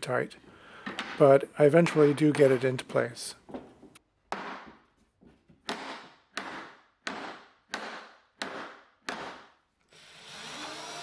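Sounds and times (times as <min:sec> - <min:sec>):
rubber mallet knocking plywood: 0:05.6 - 0:09.5.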